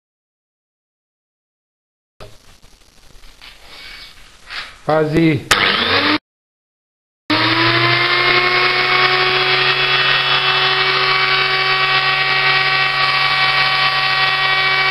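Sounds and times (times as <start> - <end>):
angle grinder motor whine: 5.5 - 6.2, 7.3 - 14.9.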